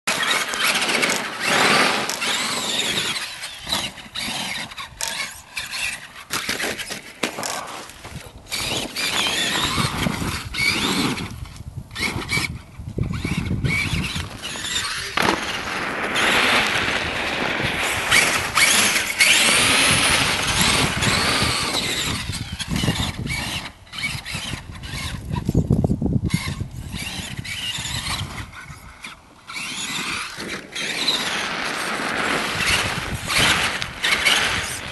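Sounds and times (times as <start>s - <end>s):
toy truck electric motor whining: 0.1s - 15.3s, 17.8s - 34.9s
tyres spinning on snow: 0.1s - 34.9s.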